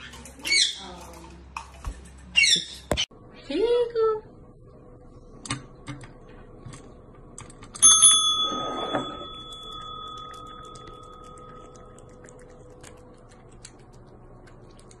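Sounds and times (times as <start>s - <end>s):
small bell ringing: 7.8s - 12.0s.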